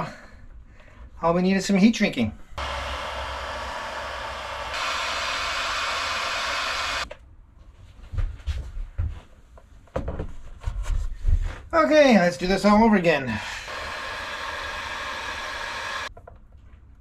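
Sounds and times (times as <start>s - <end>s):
heat gun blowing: 2.6s - 7.1s, 13.3s - 16.1s.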